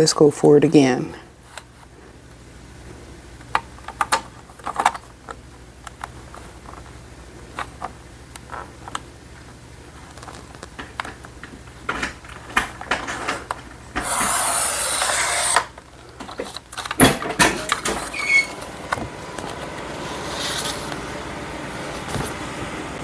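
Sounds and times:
paper trimmer blade sliding: 0:14.0 - 0:15.7.

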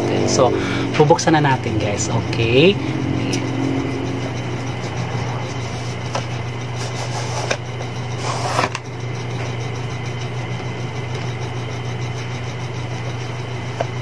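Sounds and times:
steady low hum: 0:00.0 - 0:14.0
cardboard lid scraping: 0:05.8 - 0:07.6, 0:08.2 - 0:08.8.

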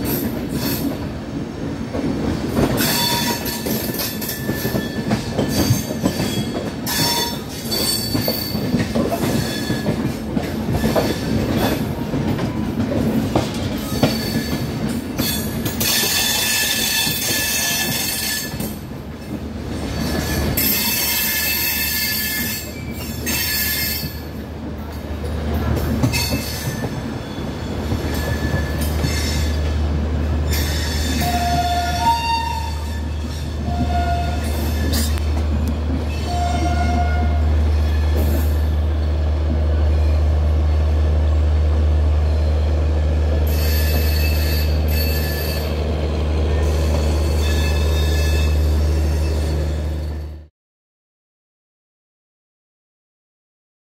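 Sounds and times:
train wheels rumbling on rails: 0:00.0 - 0:50.5
high-pitched wheel squeal: 0:43.5 - 0:45.8, 0:46.7 - 0:50.4.

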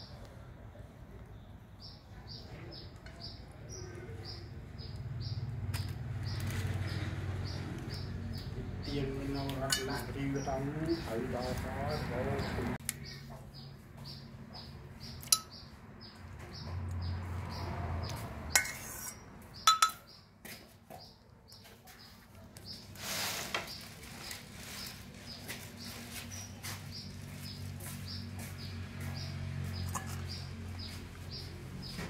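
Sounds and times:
metal spoon scraping steel bowl: 0:09.6 - 0:10.1, 0:18.5 - 0:20.0.

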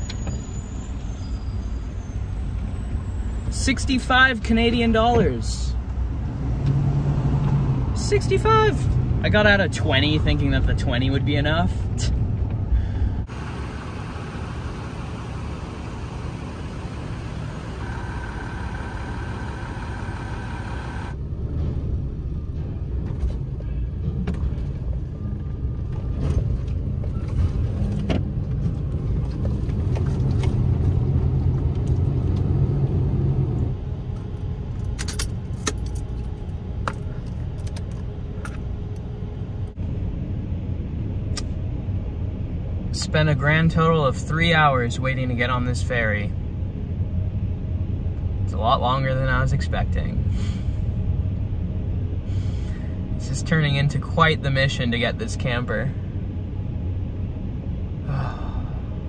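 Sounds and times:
vehicle engine low rumble: 0:00.0 - 0:59.0
steady tone: 0:13.2 - 0:21.2.

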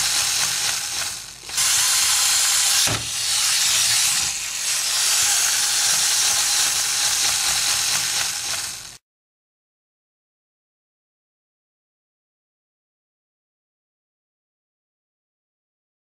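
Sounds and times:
wind-up toy ratcheting buzz: 0:00.0 - 0:09.0.

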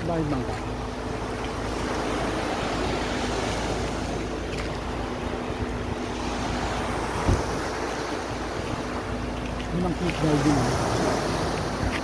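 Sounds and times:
boat engine humming: 0:00.0 - 0:12.0
small waves washing onto shore: 0:00.0 - 0:12.0
wind on microphone: 0:02.7 - 0:12.0
low thump: 0:07.2 - 0:07.5.

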